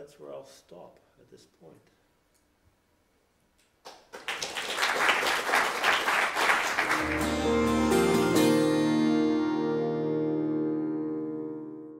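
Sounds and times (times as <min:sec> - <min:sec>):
audience applauding: 0:03.9 - 0:07.6
instrumental music with held notes: 0:06.9 - 0:11.9.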